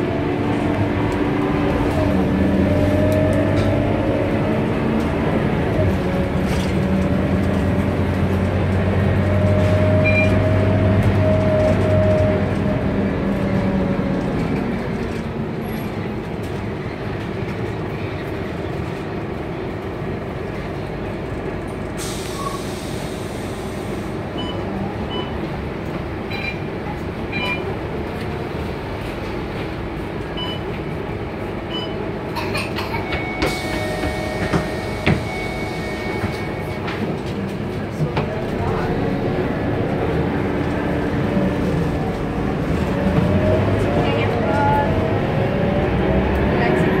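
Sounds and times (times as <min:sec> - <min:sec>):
bus engine and road noise: 0:00.0 - 0:47.0
air brake hiss: 0:22.0 - 0:24.1.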